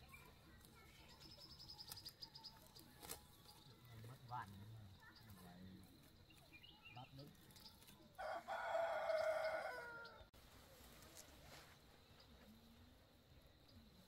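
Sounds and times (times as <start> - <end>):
rooster crowing: 8.2 - 10.3.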